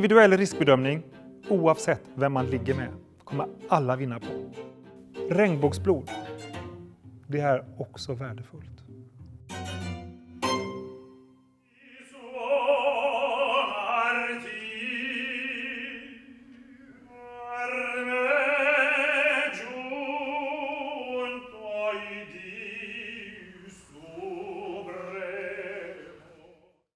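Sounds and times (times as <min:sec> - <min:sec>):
man singing opera with vibrato: 0:11.7 - 0:26.9.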